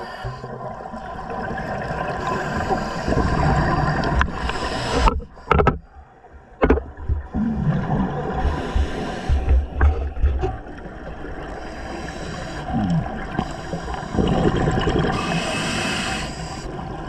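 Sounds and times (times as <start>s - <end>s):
exhaled bubbles underwater: 0.0s - 5.4s, 6.9s - 17.0s
regulator inhale hiss: 2.2s - 3.4s, 4.3s - 5.5s, 8.5s - 9.7s, 11.5s - 14.3s, 15.1s - 16.8s
dull knocks: 6.6s - 7.3s.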